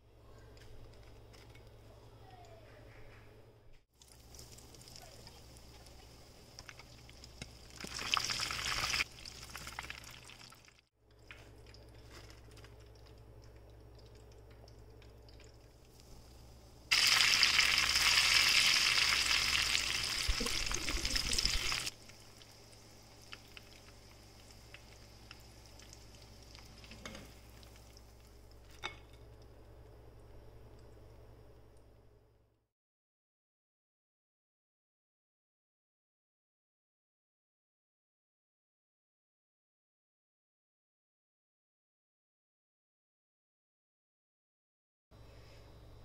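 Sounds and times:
hot oil sizzling: 4.0s - 10.8s, 15.9s - 28.7s
faint low hum: 20.0s - 32.5s, 45.2s - 46.0s.

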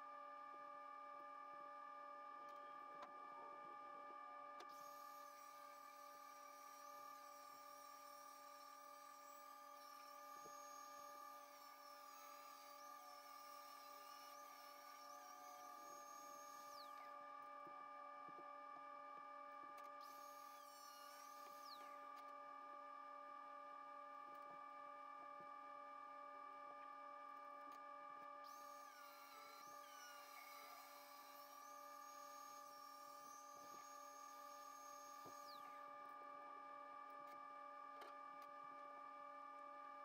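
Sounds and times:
electrical hum and whine: 0.0s - 25.4s.

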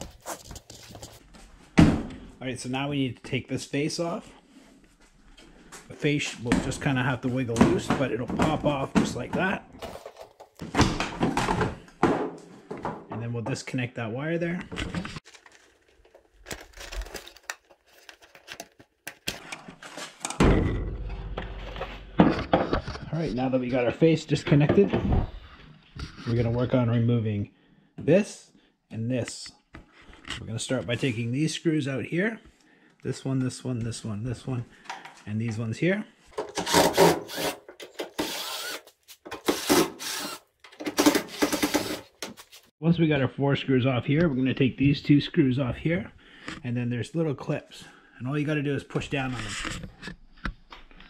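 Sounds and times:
plastic connectors clicking and rattling: 15.3s - 19.4s
cordless drill removing screws: 36.4s - 42.3s.

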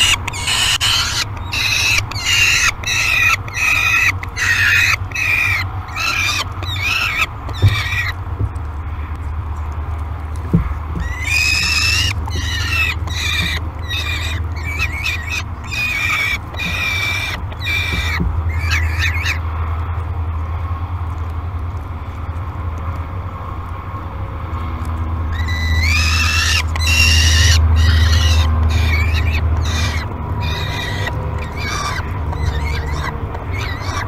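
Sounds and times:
falcon calling: 0.0s - 8.2s, 10.9s - 19.4s, 25.3s - 34.0s.

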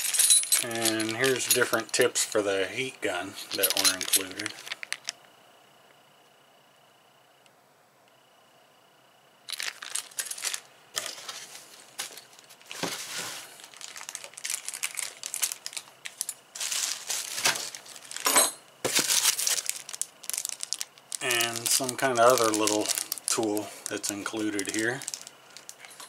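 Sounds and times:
plastic packaging crinkling: 3.5s - 5.2s, 9.5s - 26.0s.

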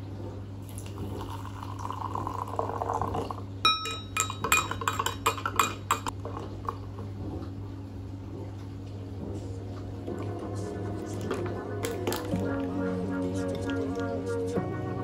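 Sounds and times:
steady low hum: 0.0s - 15.0s
milk pouring: 0.6s - 3.4s
water pouring into glass: 0.6s - 5.4s
spoon clinking in glass: 3.7s - 6.1s.

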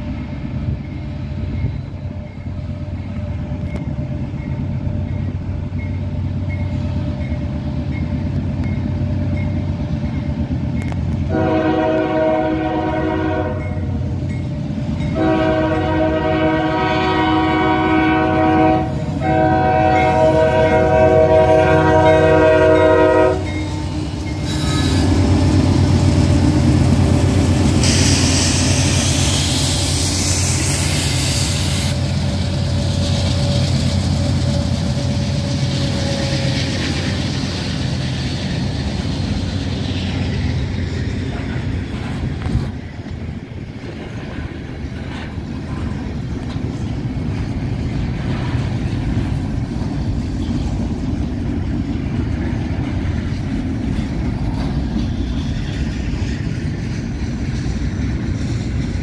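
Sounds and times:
railroad crossing bell ringing: 0.0s - 11.2s, 13.4s - 16.0s, 19.8s - 21.0s, 21.7s - 26.1s
freight train rumbling: 0.0s - 59.0s
locomotive air horn blasts: 11.3s - 13.8s, 15.1s - 25.5s
locomotive engine running loud: 18.5s - 59.0s
rushing noise: 23.3s - 59.0s.

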